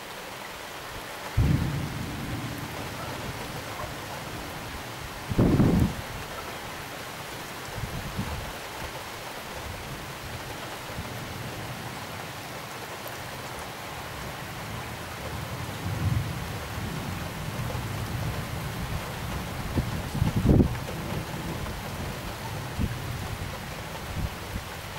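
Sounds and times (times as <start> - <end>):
heavy rain falling: 0.0 - 24.9
low thunder rumbling: 1.4 - 6.3.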